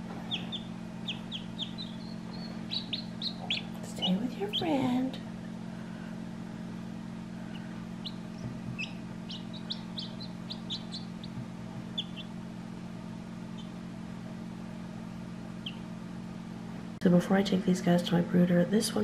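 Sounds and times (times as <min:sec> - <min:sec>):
chicks peeping: 0:00.0 - 0:05.0, 0:07.5 - 0:12.5, 0:13.5 - 0:13.8, 0:15.6 - 0:15.9
steady low hum: 0:00.0 - 0:19.0.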